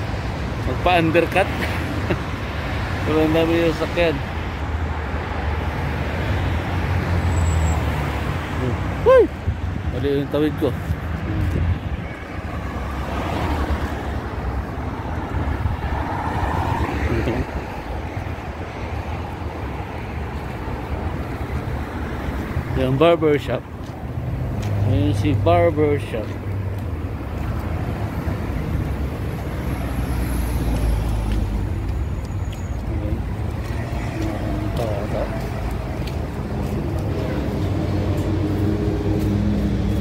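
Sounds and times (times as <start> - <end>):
cars driving past: 0.0 - 40.0
highway traffic rumble: 0.0 - 40.0
wind rumble on microphone: 10.8 - 12.2.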